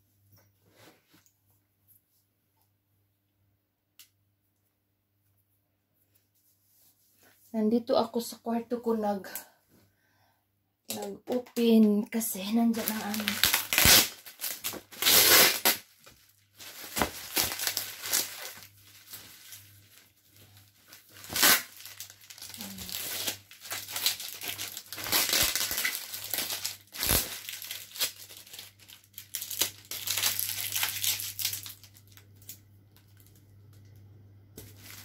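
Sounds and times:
plastic wrapping crinkling: 10.9 - 33.8, 34.6 - 35.0
plastic ripping: 12.7 - 33.4, 34.6 - 35.0.

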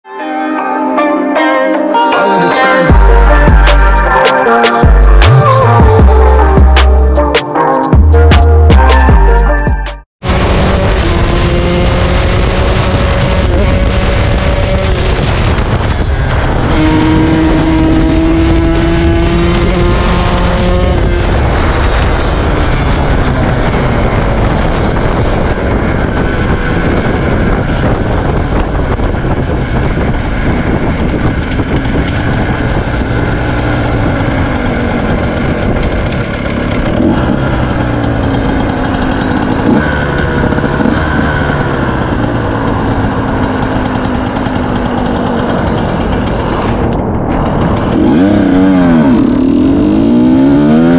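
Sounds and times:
two-stroke motorcycle engine revving: 10.2 - 50.9.

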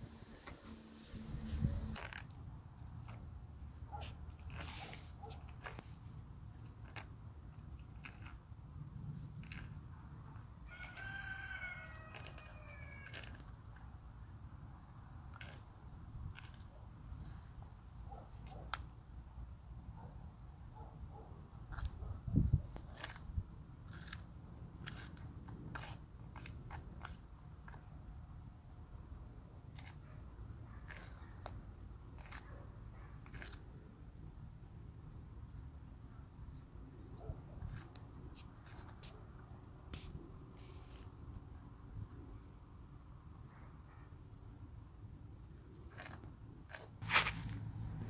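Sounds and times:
low steady hum: 0.0 - 4.5
tortoise crunching food: 0.2 - 19.8, 21.4 - 28.5, 29.2 - 34.4, 37.6 - 39.2, 45.5 - 48.0
rooster crowing: 10.7 - 13.3.

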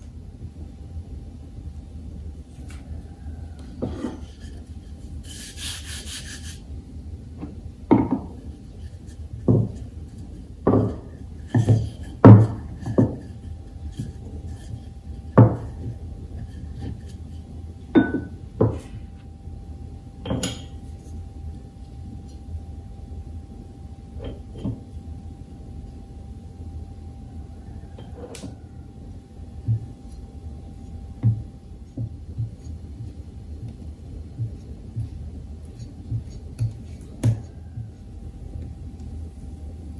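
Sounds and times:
faint steady hum: 0.0 - 39.9.

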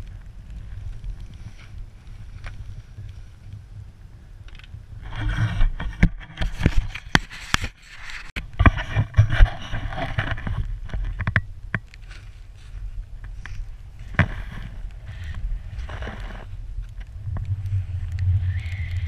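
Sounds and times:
wind rumble on microphone: 0.0 - 19.0
snow hissing under skis: 17.8 - 19.0.

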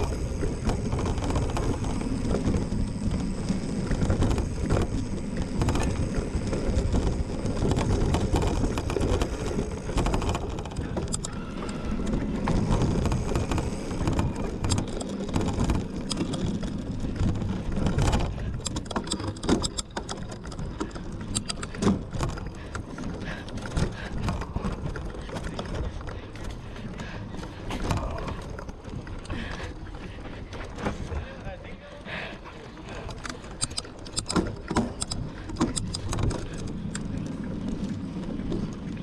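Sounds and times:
bike rattling clicks and knocks: 0.0 - 39.0
bike tyres rumbling: 0.0 - 39.0.

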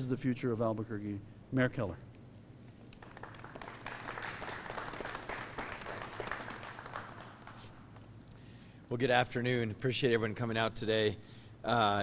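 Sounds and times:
audience applauding: 2.9 - 7.9.

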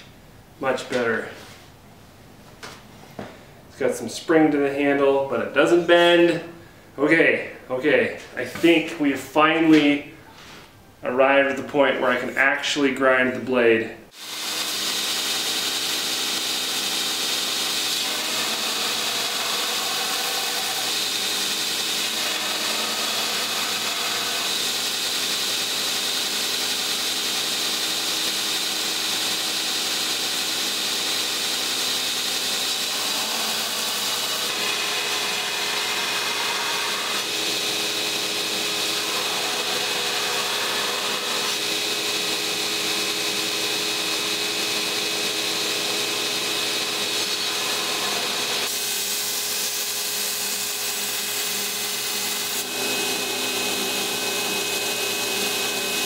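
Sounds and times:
belt grinder running: 14.2 - 56.0.

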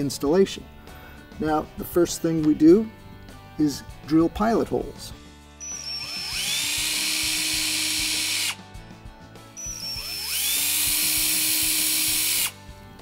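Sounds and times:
cordless drill whining: 5.6 - 8.6, 9.5 - 12.6.

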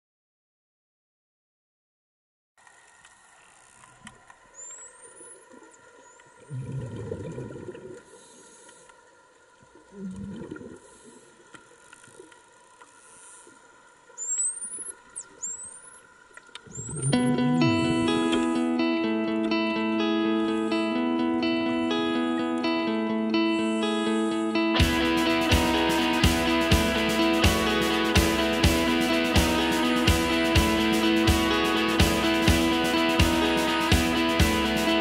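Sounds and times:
diver exhaling bubbles: 6.4 - 8.2, 9.7 - 11.4
dolphin whistles underwater: 14.2 - 16.1, 16.7 - 17.3.

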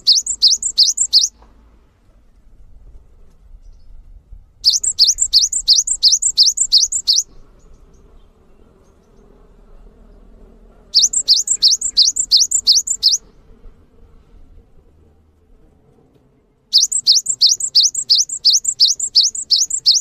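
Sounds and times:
bird singing high sweeping notes: 0.0 - 1.3, 4.7 - 9.3, 11.0 - 13.3, 16.7 - 20.0.

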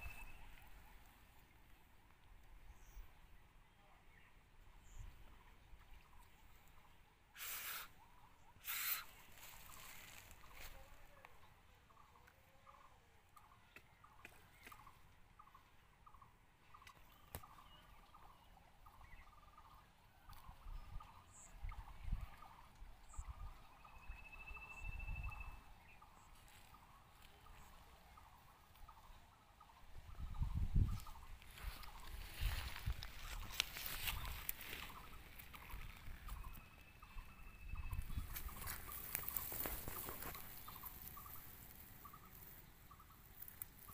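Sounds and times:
outdoor ambience: 0.0 - 43.9
short animal calls: 7.3 - 8.0, 8.6 - 9.2.

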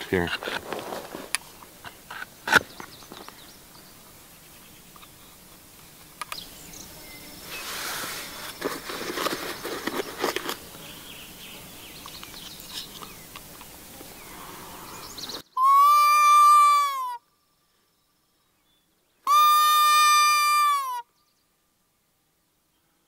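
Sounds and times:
clothing and gear rustling: 0.3 - 1.6, 7.5 - 10.6
fawn distress call bleat: 15.6 - 17.2, 19.3 - 21.1.

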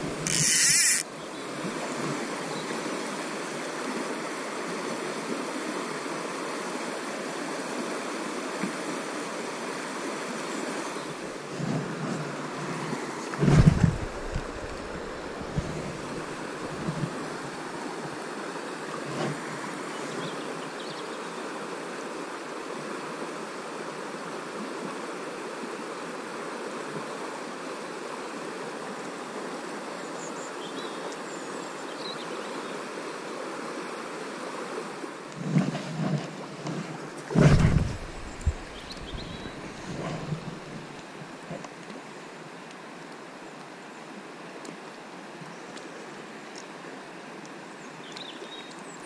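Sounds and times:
river water rushing: 0.0 - 35.4, 36.3 - 49.0
wind buffeting microphone: 13.4 - 17.1, 37.3 - 40.9.

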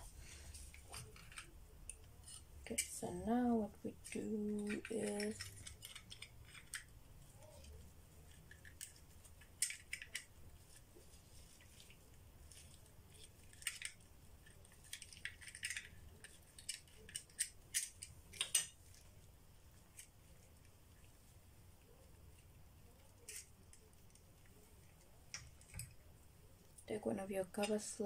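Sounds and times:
small hard objects clicking: 3.9 - 10.9, 11.8 - 19.2, 23.1 - 26.1.

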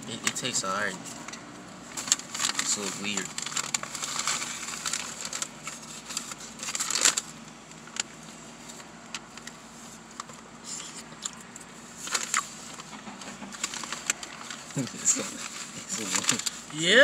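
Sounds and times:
paper wrapper crinkling: 1.9 - 9.6, 11.3 - 17.0.

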